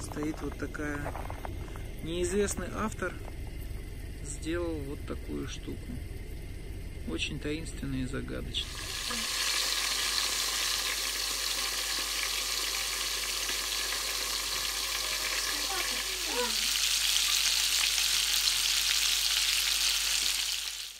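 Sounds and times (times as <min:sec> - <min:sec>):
fish sizzling in hot oil: 0:08.6 - 0:20.9.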